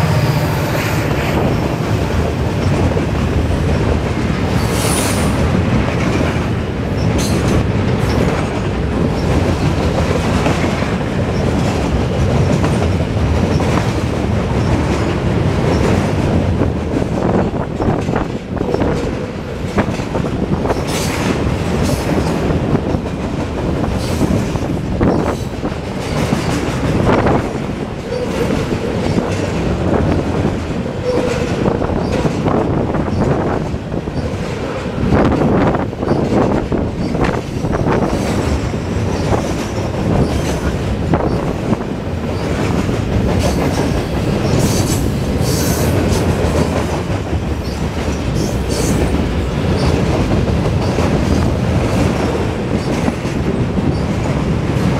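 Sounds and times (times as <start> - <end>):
train wheels rumbling on rails: 0.0 - 54.9
clanks over rail joints: 0.5 - 54.9.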